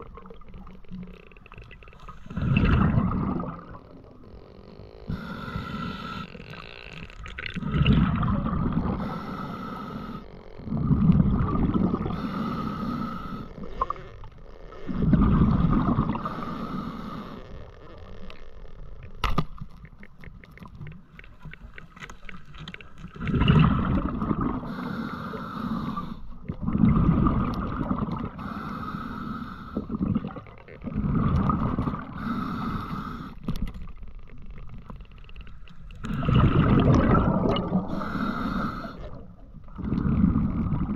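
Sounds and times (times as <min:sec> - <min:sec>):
diver breathing underwater bubbles: 0:01.9 - 0:04.2, 0:05.1 - 0:14.2, 0:14.8 - 0:17.6, 0:23.0 - 0:34.0, 0:35.5 - 0:40.9.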